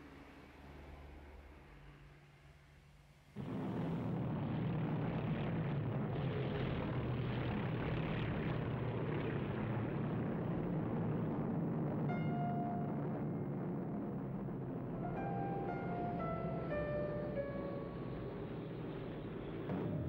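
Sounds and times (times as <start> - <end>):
propeller aircraft engines droning: 3.4 - 20.0.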